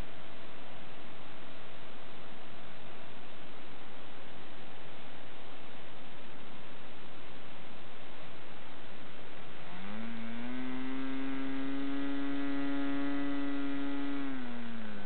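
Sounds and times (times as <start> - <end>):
model engine revving: 9.5 - 15.0.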